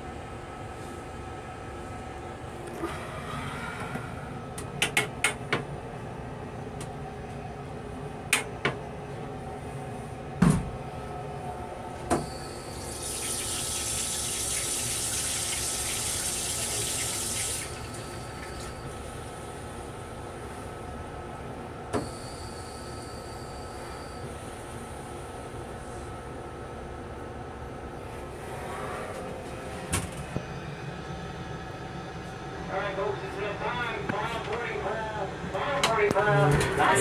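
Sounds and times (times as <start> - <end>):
moving train running noise: 0.0 - 37.0
toilet flush hissing: 12.2 - 18.8.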